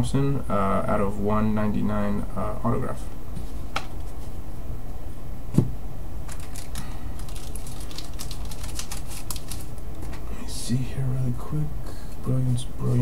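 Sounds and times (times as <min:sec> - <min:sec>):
steady low hum: 0:00.0 - 0:13.0
dull knock on desk: 0:05.5 - 0:05.8
cards rustling and clicking: 0:06.3 - 0:10.2.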